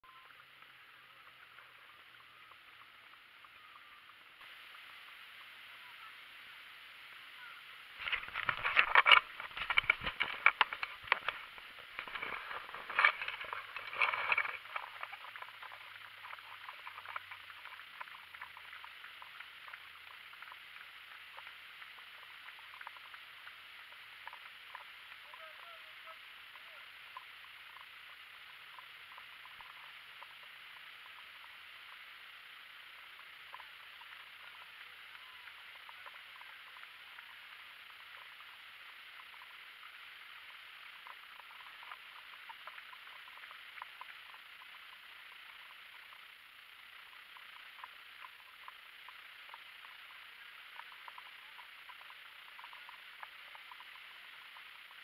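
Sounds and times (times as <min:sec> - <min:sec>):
faint muffled hiss: 0:00.0 - 0:55.0
camera handling noise: 0:08.0 - 0:14.9.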